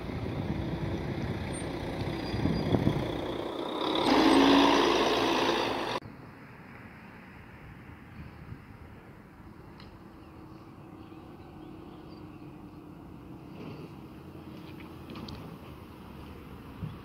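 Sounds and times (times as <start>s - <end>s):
wind noise: 0.0s - 4.6s, 7.4s - 9.5s
buses driving past: 0.0s - 17.0s.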